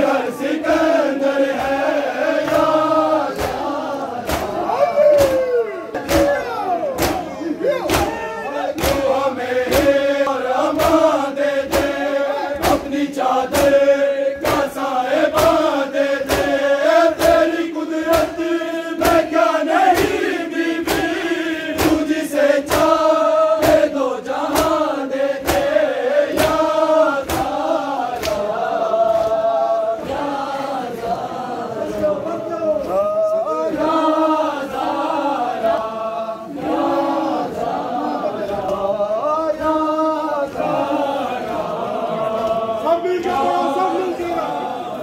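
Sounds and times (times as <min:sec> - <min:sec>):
men chanting in unison: 0:00.0 - 0:45.0
palms slapping chests: 0:02.4 - 0:04.6, 0:06.0 - 0:29.6.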